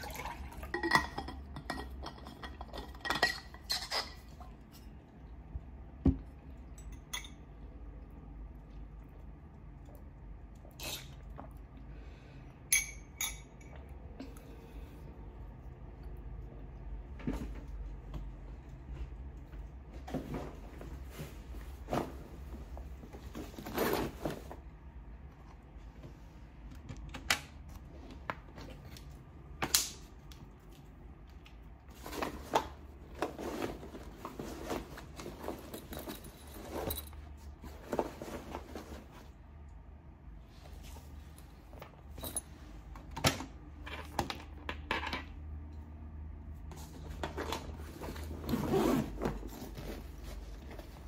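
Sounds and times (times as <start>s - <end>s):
fabric backpack rustling: 47.9s - 51.0s.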